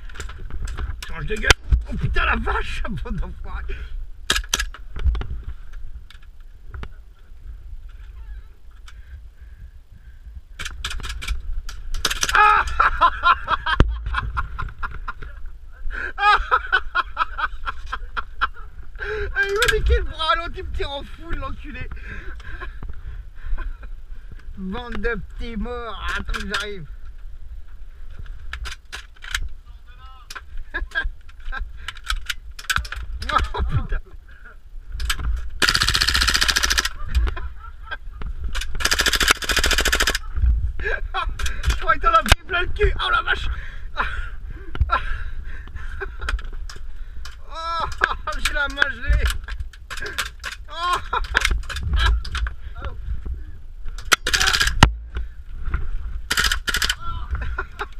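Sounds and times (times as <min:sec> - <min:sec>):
man yelling and laughing: 0:01.9 - 0:03.8, 0:12.3 - 0:13.8, 0:16.0 - 0:17.2, 0:40.8 - 0:44.1, 0:47.4 - 0:49.3, 0:50.7 - 0:51.4, 0:56.9 - 0:57.9
airsoft gunfire clicks and cracks: 0:04.3 - 0:04.9, 0:10.6 - 0:12.8, 0:28.5 - 0:29.6, 0:31.9 - 0:33.5, 0:35.0 - 0:37.4, 0:38.5 - 0:40.2, 0:46.3 - 0:52.5, 0:54.0 - 0:55.0, 0:56.3 - 0:57.0
airsoft gun firing full auto: 0:35.6 - 0:37.0, 0:38.8 - 0:40.2, 0:54.2 - 0:54.8, 0:56.3 - 0:57.0.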